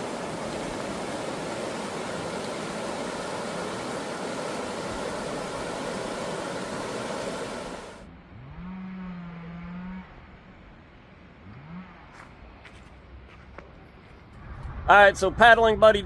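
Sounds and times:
river rapids rushing: 0.0 - 8.0.

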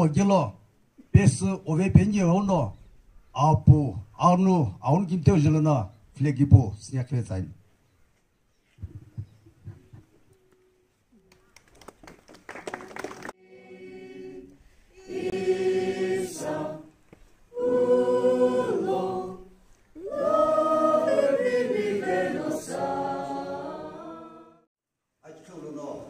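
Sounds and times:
group of voices singing: 13.4 - 24.7.

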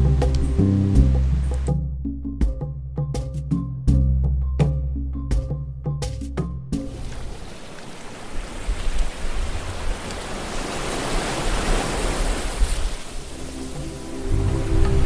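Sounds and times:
sea surf washing: 6.8 - 15.0.

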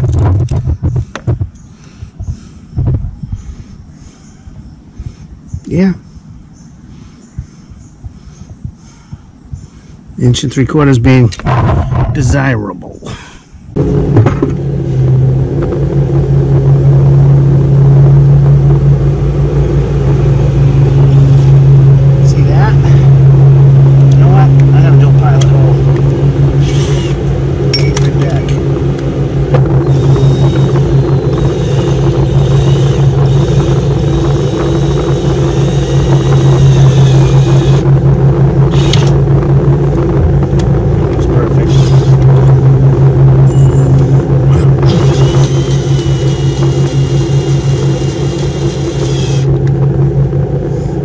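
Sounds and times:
steady low hum: 0.0 - 51.0
cordless drill motor whine: 26.6 - 27.2, 29.8 - 37.8, 38.7 - 39.2, 41.7 - 42.3, 44.9 - 49.7.

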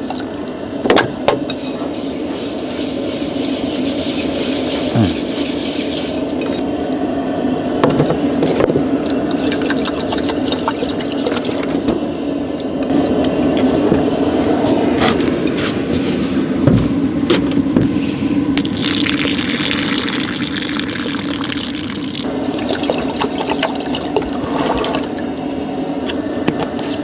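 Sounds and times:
steady low hum: 0.0 - 27.0
water pouring from bottle: 18.6 - 25.2.

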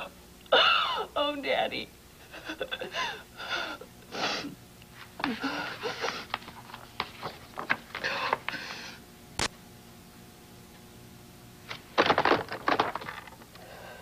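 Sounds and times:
woman sobbing: 0.5 - 1.2, 2.2 - 4.6, 5.2 - 6.4.

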